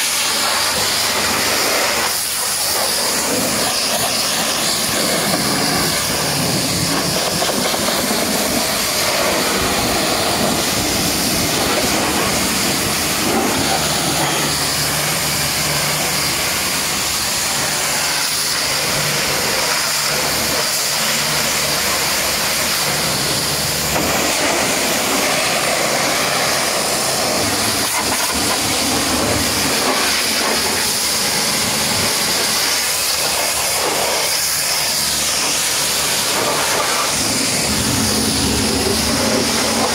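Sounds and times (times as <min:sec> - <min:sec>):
pressure washer spray hissing: 0:00.0 - 0:39.9.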